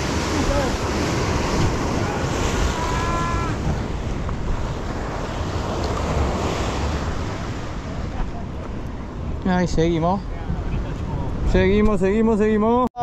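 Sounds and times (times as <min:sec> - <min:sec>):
surf breaking on rocks: 0:00.0 - 0:08.6
wind buffeting microphone: 0:00.0 - 0:12.6.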